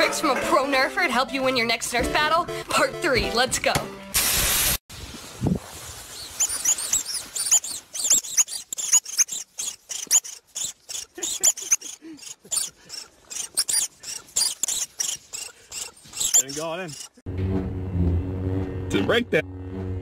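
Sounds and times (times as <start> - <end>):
loud burst of hiss: 4.2 - 6.0
small animal squeaking: 6.2 - 17.2.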